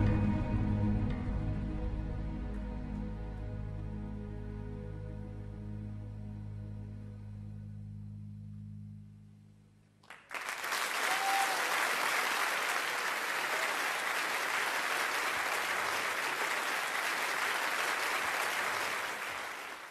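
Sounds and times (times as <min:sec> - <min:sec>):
music: 0:00.0 - 0:10.0
crowd applauding: 0:10.0 - 0:19.9.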